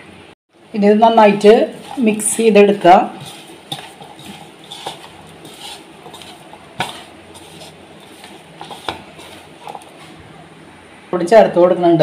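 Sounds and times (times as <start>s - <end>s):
hand squishing food: 1.6s - 10.4s.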